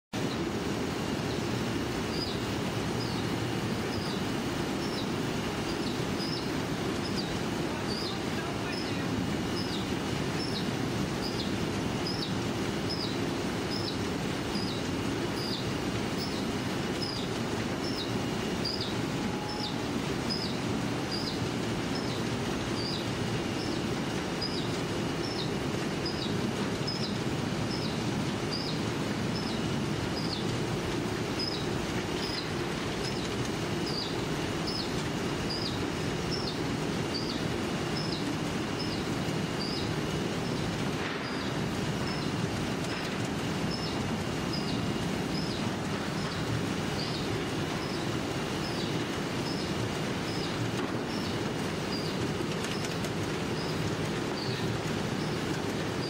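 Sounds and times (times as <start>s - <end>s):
book-sewing machine clatter: 21.5s - 56.0s.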